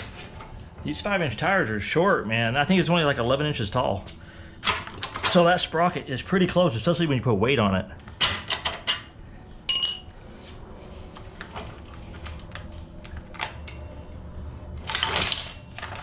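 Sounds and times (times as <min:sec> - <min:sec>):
metal tools clinking: 0:09.7 - 0:10.1.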